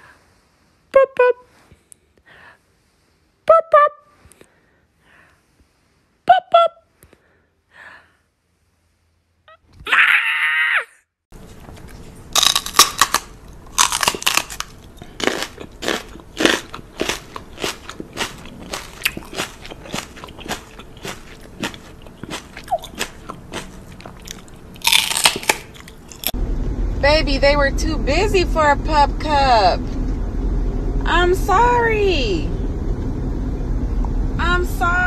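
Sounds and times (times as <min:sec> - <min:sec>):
crunching and chewing: 0:11.4 - 0:26.4.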